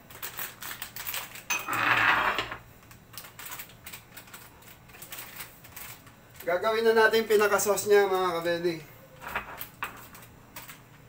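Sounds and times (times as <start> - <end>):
dishes clinking and clattering: 1.5 - 2.6.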